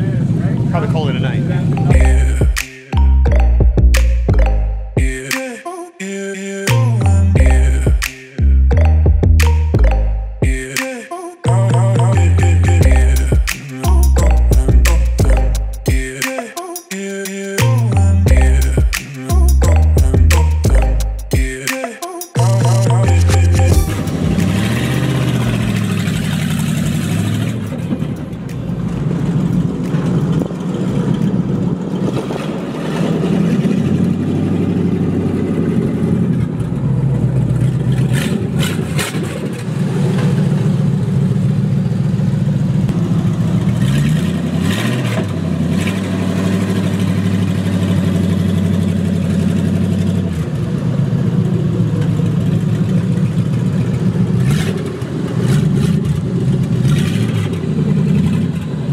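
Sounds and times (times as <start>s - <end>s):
pickup engine revving: 22.4s - 58.9s.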